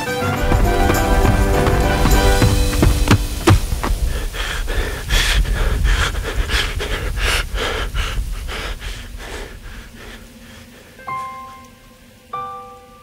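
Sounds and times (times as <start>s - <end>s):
man panting: 1.0s - 11.0s.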